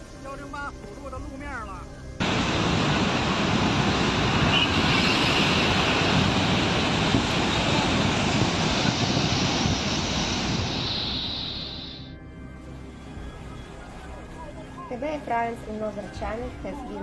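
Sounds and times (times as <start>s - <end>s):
floodwater rushing: 2.2s - 12.1s.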